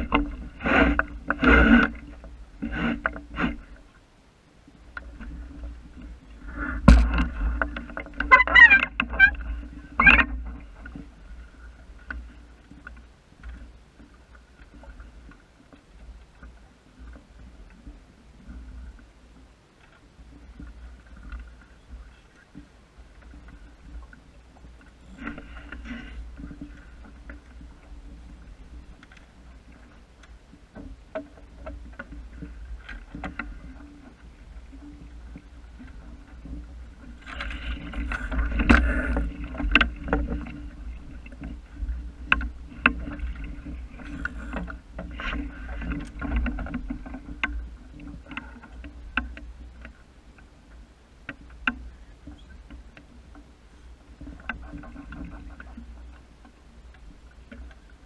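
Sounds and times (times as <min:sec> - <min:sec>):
water moving along a hull: 0:00.0 - 0:58.0
clicks and knocks from gear: 0:37.2 - 0:50.5.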